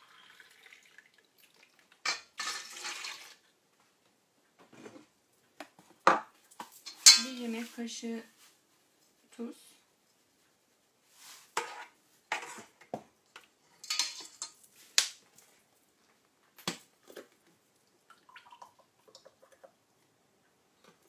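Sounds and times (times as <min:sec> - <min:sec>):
oil trickling into glass: 0:00.0 - 0:01.8, 0:18.1 - 0:19.7
metal spoon scraping in bowl: 0:11.6 - 0:12.7.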